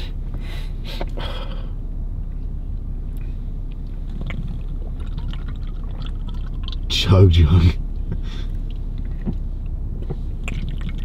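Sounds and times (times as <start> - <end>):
low rumble inside car cabin: 0.0 - 11.0.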